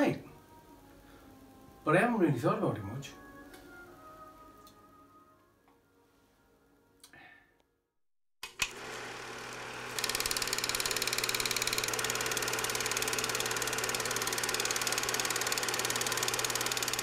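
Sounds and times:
projector mechanical clatter: 8.4s - 17.0s.

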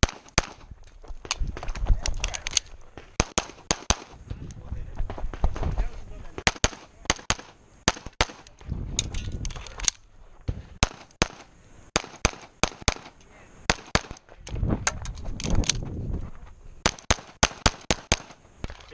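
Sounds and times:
pistol shots: 0.0s - 0.7s, 3.0s - 4.2s, 6.4s - 8.5s, 10.8s - 14.2s, 16.8s - 18.4s.

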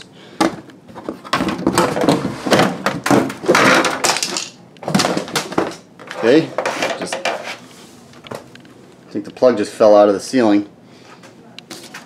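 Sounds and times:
rustling scrape: 6.2s - 8.1s.

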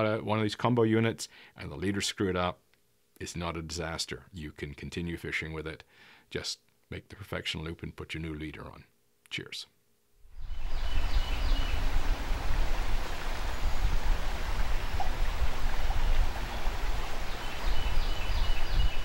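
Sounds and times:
wind buffeting microphone: 10.4s - 19.0s
river water rushing: 10.5s - 19.0s.

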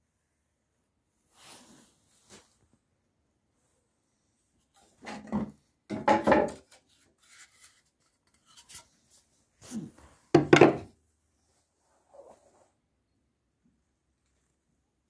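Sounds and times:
knocks and rubs against wood: 10.4s - 10.9s.

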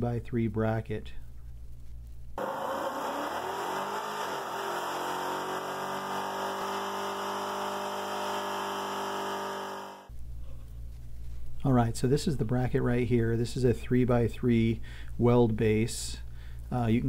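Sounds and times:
car engine revving high: 2.4s - 10.1s.

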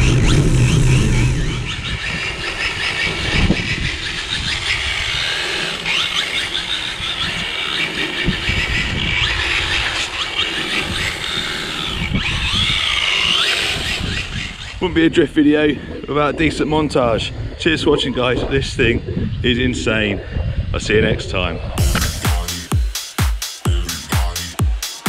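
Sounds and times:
electric motor whining: 0.0s - 16.0s
wind buffeting microphone: 0.0s - 22.2s.

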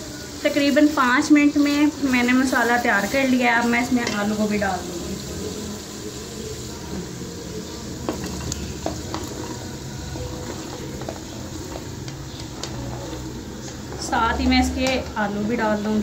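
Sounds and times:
masala sizzling in a pot: 0.0s - 16.0s
wooden spoon stirring: 5.2s - 15.2s.

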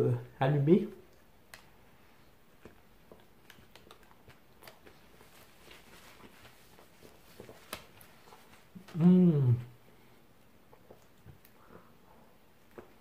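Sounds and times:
chewing food: 1.0s - 9.0s, 10.4s - 13.0s.

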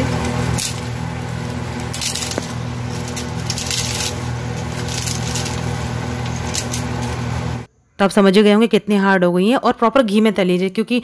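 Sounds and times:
steady low hum: 0.0s - 7.7s
crisp fried bread crunching: 0.2s - 7.2s.

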